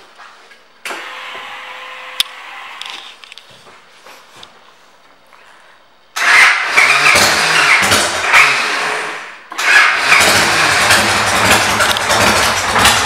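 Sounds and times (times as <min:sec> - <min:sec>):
motorcycle engine revving: 0:06.2 - 0:13.0.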